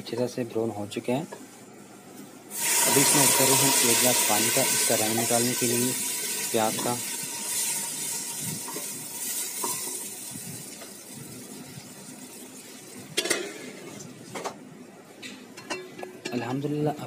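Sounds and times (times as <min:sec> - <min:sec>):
onions sizzling in hot oil: 0:02.5 - 0:14.0
metal spoon stirring in pot: 0:06.8 - 0:10.1
metal lid clank: 0:13.2 - 0:13.8.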